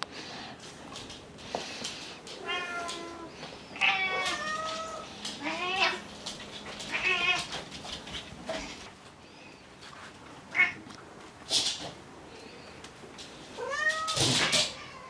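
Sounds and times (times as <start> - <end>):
cat meowing: 2.4 - 6.0, 13.6 - 15.0.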